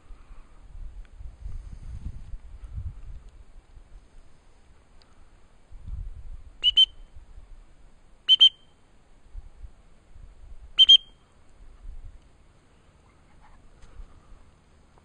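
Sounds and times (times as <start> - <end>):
dog whistle pips: 6.6 - 7.0, 8.3 - 8.7, 10.8 - 11.2.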